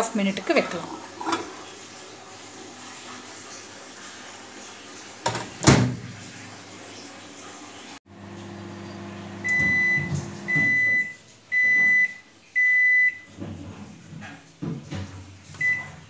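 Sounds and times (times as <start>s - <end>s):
microwave oven humming: 8.1s - 13.0s
microwave beeps: 8.4s - 13.3s, 15.6s - 16.0s.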